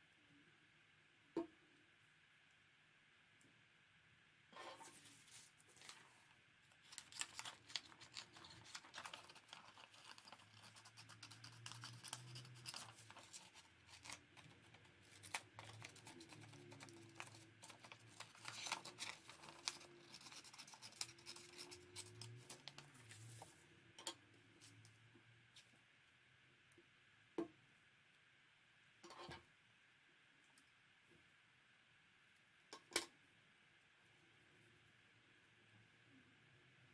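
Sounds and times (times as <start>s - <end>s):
paper rustling and crinkling: 4.8s - 23.6s.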